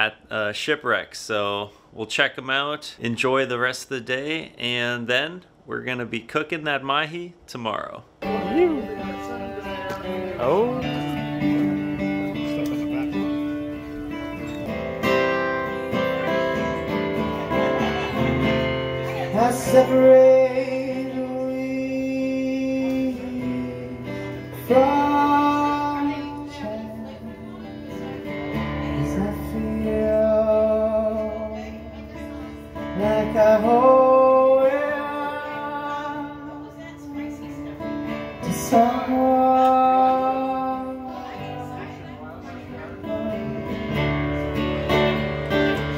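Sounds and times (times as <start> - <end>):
acoustic guitar strumming: 8.2 - 45.9
man singing into microphone: 19.2 - 28.1, 28.8 - 37.6, 38.3 - 44.1.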